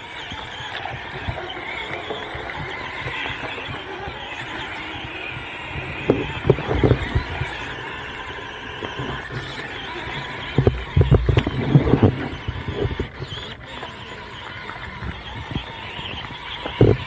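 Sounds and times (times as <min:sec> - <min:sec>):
thumping and splashing: 0:00.0 - 0:13.6
electric motor whine: 0:00.0 - 0:17.0
flowing water: 0:00.0 - 0:17.0.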